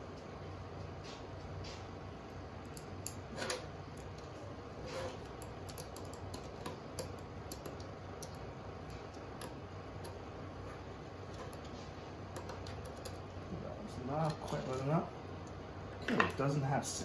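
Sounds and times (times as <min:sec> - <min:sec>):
screwdriver clicking and scraping: 0:02.7 - 0:13.2.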